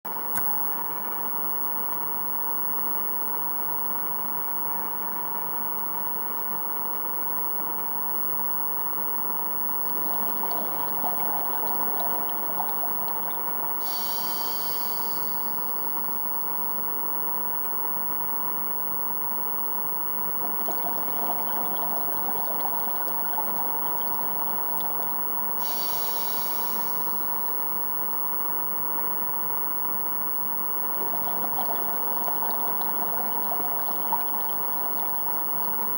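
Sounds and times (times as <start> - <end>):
constant hum: 0.1 - 35.9
underwater watery wash: 9.9 - 15.5, 20.1 - 27.1, 30.4 - 35.9
regulator hiss: 13.8 - 15.4, 25.6 - 27.0
bubbling: 30.8 - 35.9.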